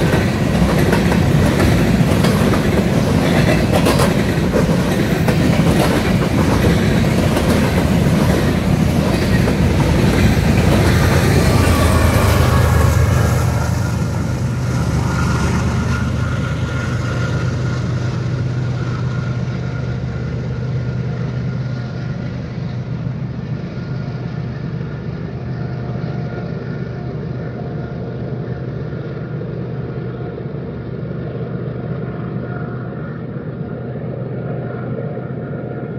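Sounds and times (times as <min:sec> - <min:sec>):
train rumbling: 0:00.0 - 0:35.9.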